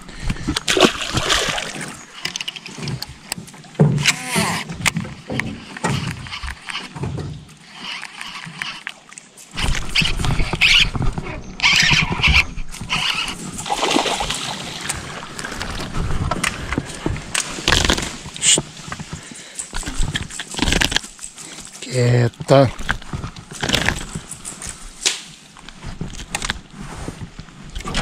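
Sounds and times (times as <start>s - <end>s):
fish thrashing and splashing: 0.1s - 3.7s, 5.1s - 21.9s.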